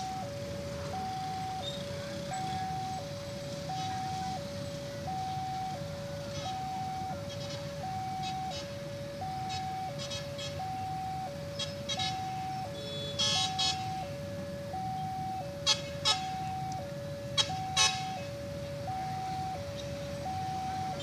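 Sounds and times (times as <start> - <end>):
level crossing two-tone alarm: 0.0 - 21.0
road traffic rumble: 0.0 - 21.0
vehicle horn toots: 11.9 - 14.0, 17.4 - 18.2.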